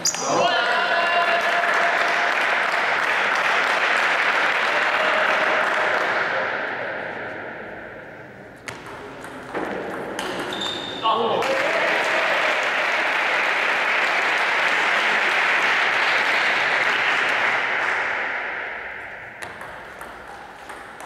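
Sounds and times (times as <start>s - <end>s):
spectators applauding: 0.9s - 6.2s, 11.4s - 18.1s.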